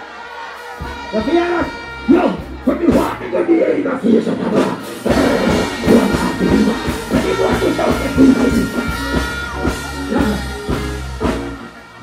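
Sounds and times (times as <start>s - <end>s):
dancehall music over sound system: 0.0s - 12.0s
heavy bass line: 0.8s - 12.0s.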